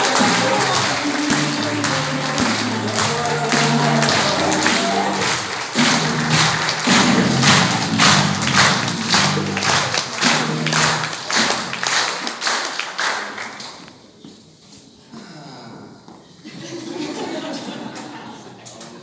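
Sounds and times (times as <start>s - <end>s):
music: 0.0s - 12.1s
audience clapping in rhythm: 0.0s - 14.1s.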